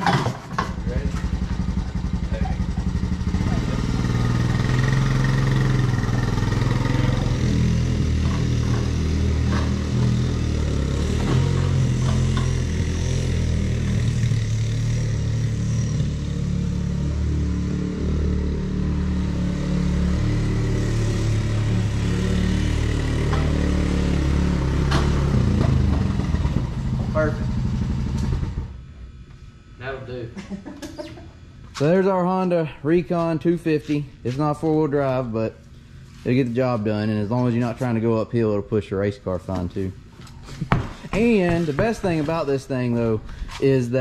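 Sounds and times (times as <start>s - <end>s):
quad bike engine revving: 0.0s - 28.8s.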